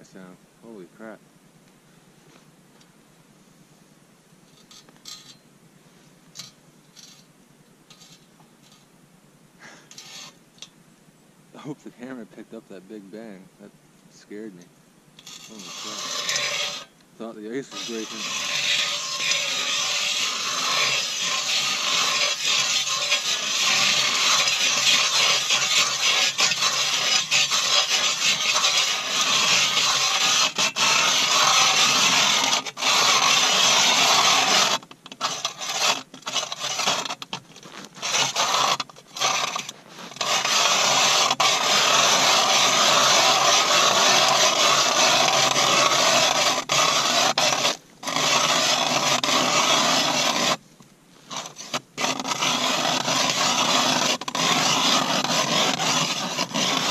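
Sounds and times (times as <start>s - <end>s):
ice auger grinding through ice: 15.2s - 50.6s, 51.2s - 56.9s.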